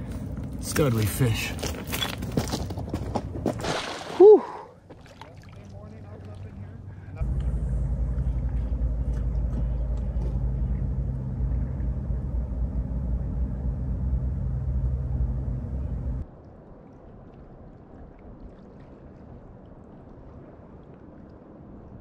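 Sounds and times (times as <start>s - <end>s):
outdoor ambience: 0.0s - 22.0s
motor humming: 6.9s - 16.2s.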